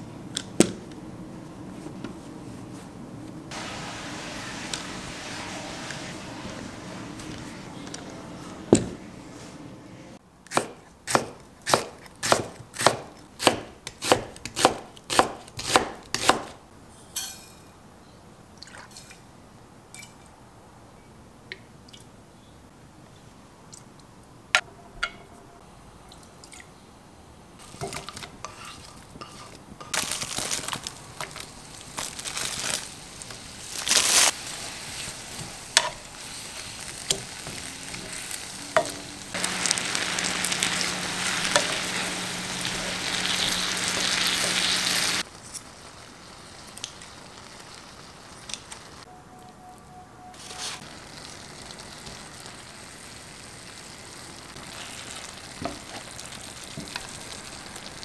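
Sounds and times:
frying pan hissing: 0:03.5 - 0:09.4, 0:29.9 - 0:49.1, 0:50.4 - 0:58.0
knife chopping on cutting board: 0:10.5 - 0:16.5
wooden spatula stirring onions: 0:27.7 - 0:30.2.

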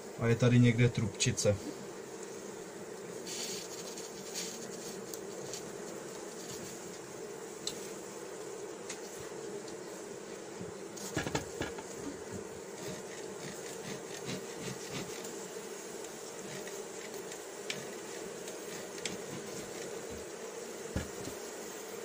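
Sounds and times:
honeybees humming: 0:00.0 - 0:22.0
sharp knocks: 0:11.1 - 0:11.9.

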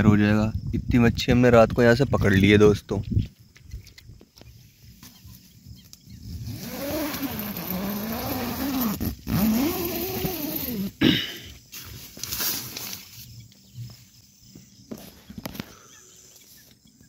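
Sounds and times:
loud rustle: 0:11.7 - 0:13.3.

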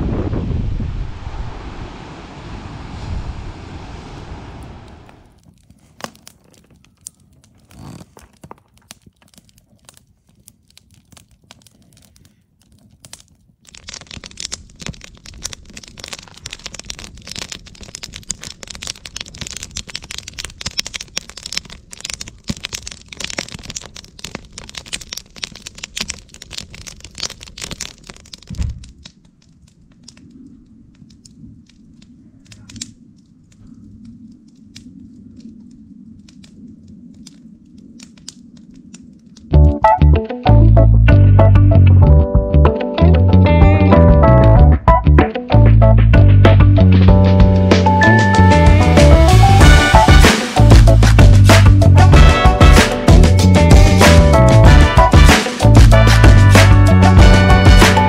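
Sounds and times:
surf: 0:00.0 - 0:05.4, 0:43.6 - 0:58.0
wind: 0:00.0 - 0:58.0
beach cobblestones clattering: 0:04.8 - 0:35.6, 0:36.2 - 0:58.0.

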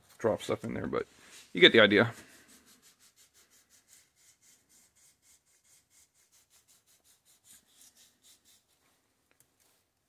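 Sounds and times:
sandpaper rubbing on metal: 0:01.3 - 0:08.8.

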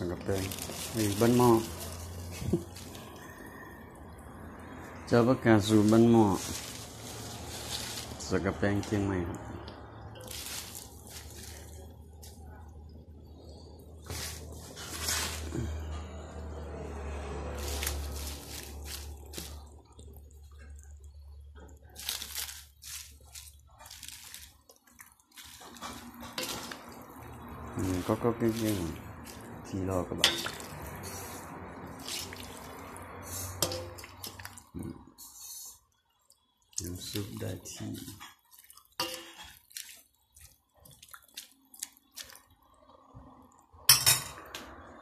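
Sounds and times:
wet squishing of leaves: 0:00.0 - 0:35.2, 0:35.9 - 0:43.6
liquid splashing: 0:05.7 - 0:12.2, 0:17.5 - 0:34.9, 0:36.2 - 0:43.7.

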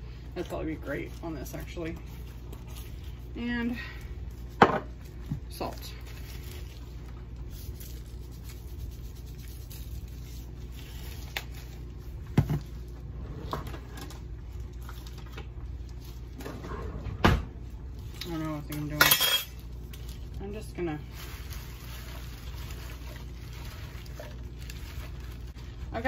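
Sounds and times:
salt shaker shaking: 0:07.4 - 0:10.6.

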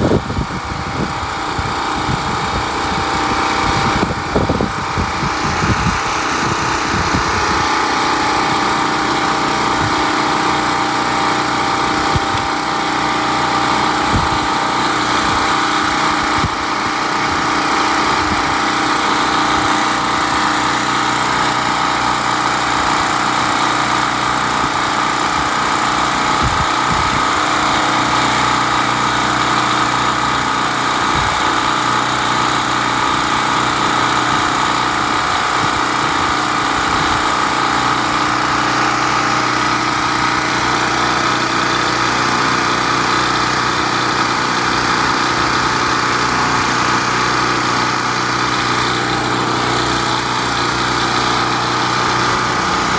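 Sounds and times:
generator engine running: 0:00.0 - 0:52.9.

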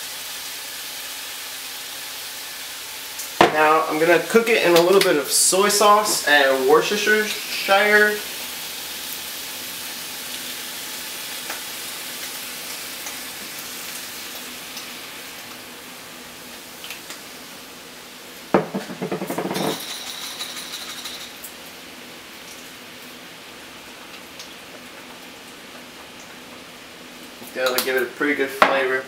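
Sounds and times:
beef sizzling in a frying pan: 0:00.0 - 0:29.0
clattering against pan: 0:18.6 - 0:21.4.

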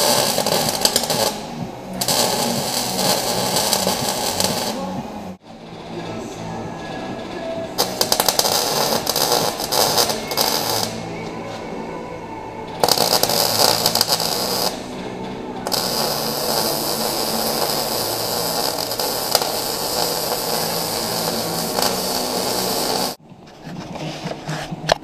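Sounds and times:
welding arc buzzing: 0:00.0 - 0:05.9, 0:07.8 - 0:11.3, 0:12.8 - 0:23.2.

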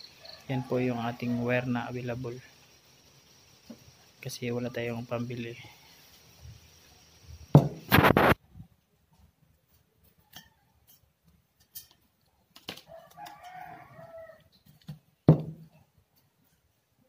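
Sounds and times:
faint rooster crowing: 0:00.1 - 0:02.0, 0:10.0 - 0:11.0, 0:12.8 - 0:14.6
spray can knocking: 0:07.5 - 0:08.4, 0:15.3 - 0:15.6.

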